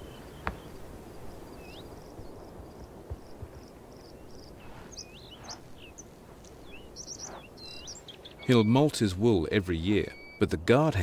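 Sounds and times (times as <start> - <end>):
high bird chirps: 4.1 - 9.0, 9.9 - 10.6.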